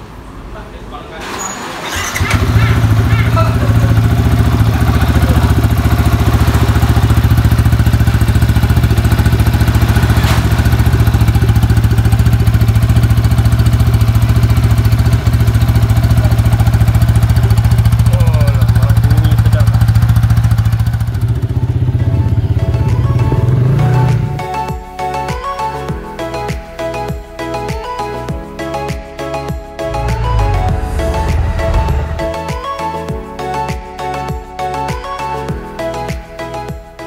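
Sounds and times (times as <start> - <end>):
different engine sound: 1.8 - 17.9, 29.8 - 33.1
motorcycle engine idling: 2.2 - 23.6.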